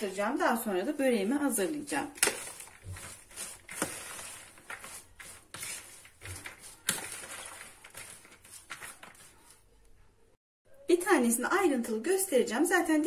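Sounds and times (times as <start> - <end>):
crisp rustling of tossed vegetables: 1.6 - 9.6.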